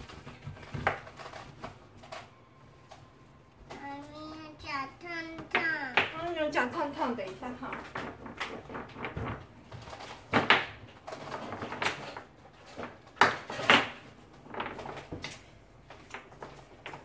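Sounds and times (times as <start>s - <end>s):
wooden rolling pins knocking on table: 7.6s - 12.1s.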